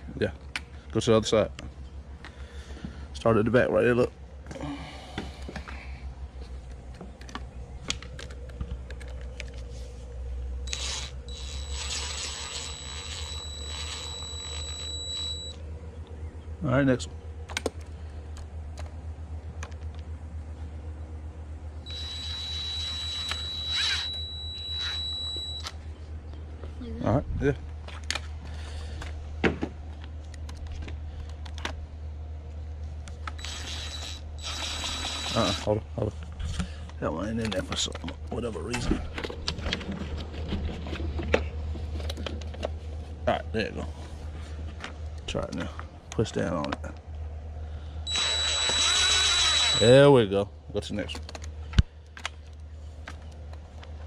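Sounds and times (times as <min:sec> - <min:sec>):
steady low hum: 0:00.0 - 0:54.0
power drill whine: 0:10.7 - 0:15.6, 0:21.8 - 0:25.7, 0:33.3 - 0:35.7, 0:48.1 - 0:50.0.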